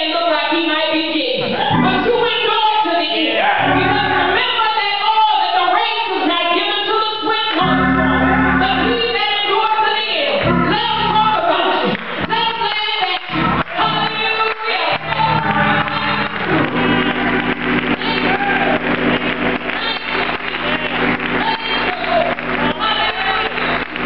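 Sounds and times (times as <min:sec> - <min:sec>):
woman singing gospel solo: 0:00.0 - 0:24.0
low held instrument chords: 0:01.7 - 0:02.2, 0:03.6 - 0:04.4, 0:07.6 - 0:09.0, 0:10.4 - 0:11.4, 0:15.0 - 0:24.0.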